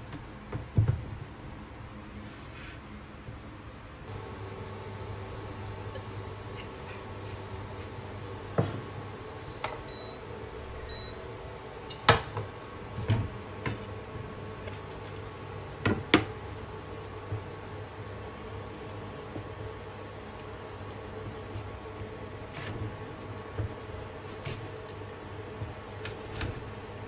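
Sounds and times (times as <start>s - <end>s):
cooktop electric hum: 0.0s - 27.0s
short high beeps: 9.2s - 10.2s.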